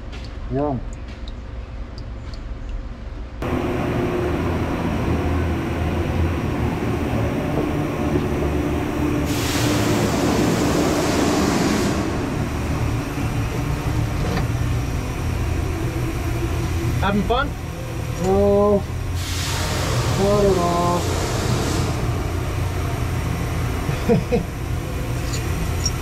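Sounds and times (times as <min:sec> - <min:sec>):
workshop machinery hum: 0:01.9 - 0:26.0
hiss: 0:09.2 - 0:12.5, 0:19.1 - 0:22.6.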